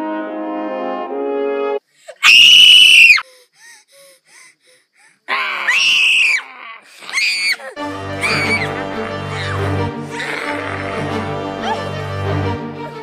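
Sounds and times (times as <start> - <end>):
girl screaming: 2.1 - 3.2, 5.3 - 10.9.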